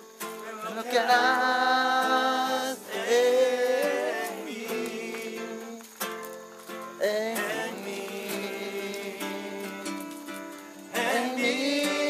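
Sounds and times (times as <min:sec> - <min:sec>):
acoustic guitar strumming: 0:00.0 - 0:12.0
person singing: 0:00.2 - 0:05.9, 0:07.0 - 0:12.0.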